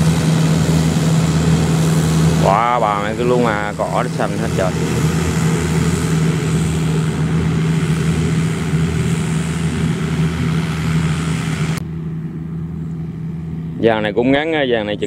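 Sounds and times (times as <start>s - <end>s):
tractor diesel engine droning: 0.0s - 11.9s.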